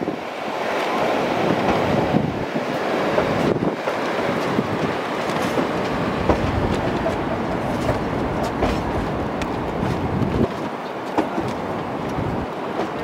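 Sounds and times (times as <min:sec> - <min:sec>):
train wheels rumbling on rails: 0:00.0 - 0:13.0
clicks and knocks from track: 0:03.1 - 0:13.0.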